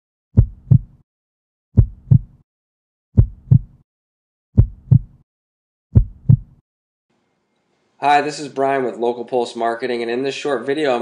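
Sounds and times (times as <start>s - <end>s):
heartbeat thumps: 0.4s - 1.0s, 1.8s - 2.4s, 3.2s - 3.8s, 4.6s - 5.2s, 5.9s - 6.6s.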